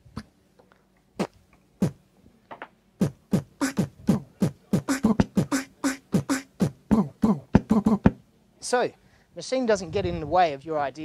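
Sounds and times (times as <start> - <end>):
beatboxed mouth-sound beat: 1.2 - 2.0, 3.0 - 8.2
short percussive hits: 3.0 - 8.2.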